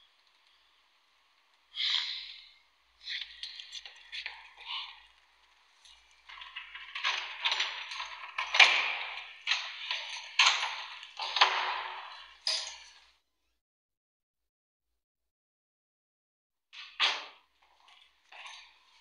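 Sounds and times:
keys and door lock clattering: 0:05.8 - 0:13.1.

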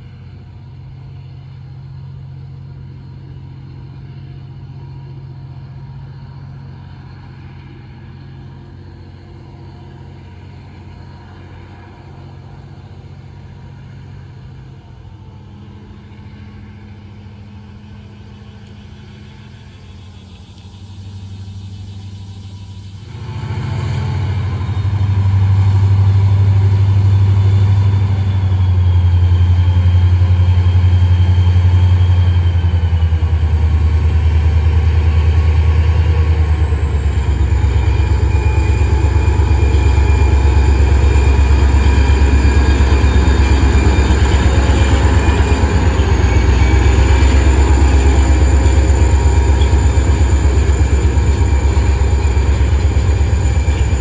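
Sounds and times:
locomotive engine drone: 0:00.0 - 0:54.0
high whines sliding down: 0:22.9 - 0:54.0.

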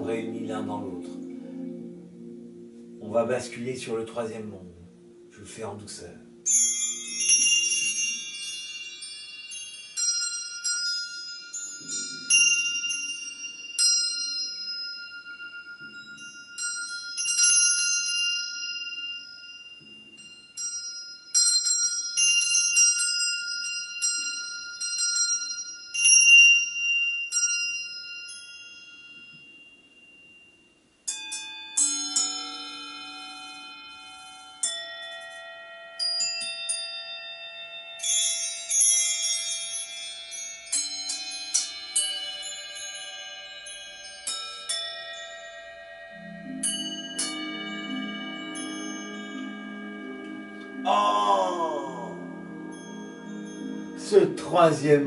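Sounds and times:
ambient bell-like chime music: 0:00.0 - 0:55.0.

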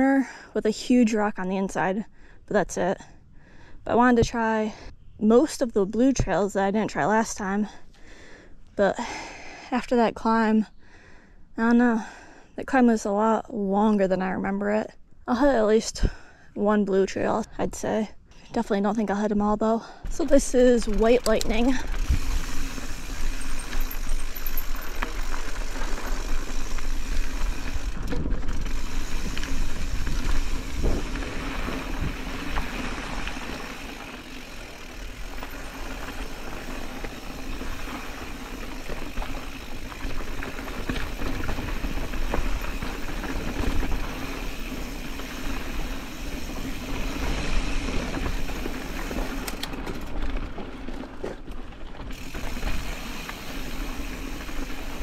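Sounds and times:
bike knocks and rattles: 0:20.1 - 0:55.0
bike tyres rolling over dirt: 0:20.1 - 0:55.0.

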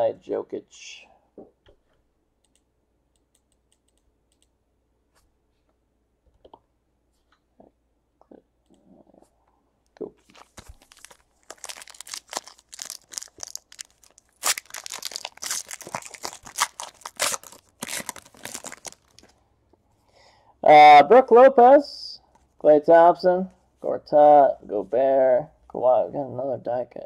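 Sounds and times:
foil wrapper crinkling and tearing: 0:10.2 - 0:19.3.

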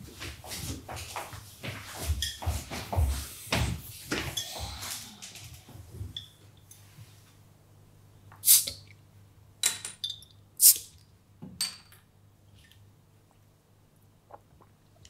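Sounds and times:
glass and metal clinks: 0:09.7 - 0:10.4.

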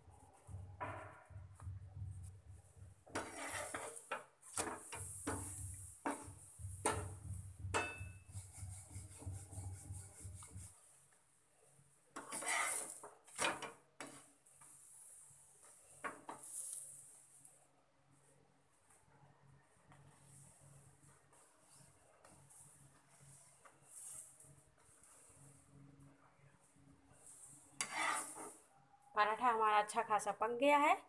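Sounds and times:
rolling pin rolling dough: 0:00.1 - 0:10.9, 0:12.1 - 0:17.4, 0:19.8 - 0:28.6
metal spatula scraping pan: 0:03.1 - 0:07.1, 0:12.2 - 0:14.3, 0:27.4 - 0:28.6.

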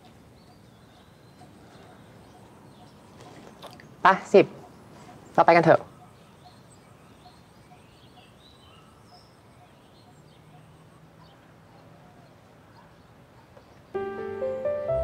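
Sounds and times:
low steady hiss: 0:13.8 - 0:15.0.

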